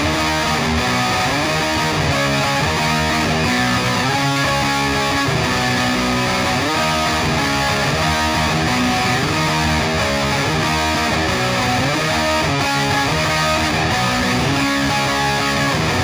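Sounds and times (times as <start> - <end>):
rock music with electric guitar: 0.0 - 16.0.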